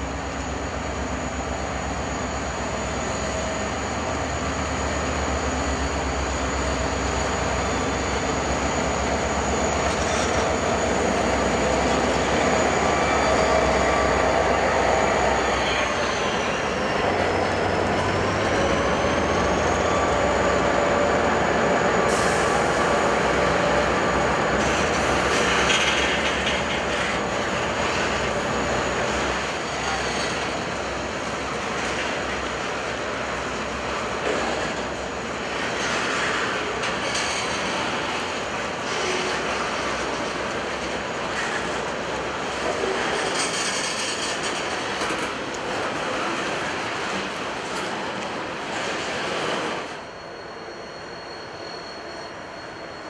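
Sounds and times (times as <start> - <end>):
diesel locomotives rumbling: 0.0 - 53.0
train wheel clatter and squeal: 0.0 - 53.0
thin high whine: 48.9 - 53.0.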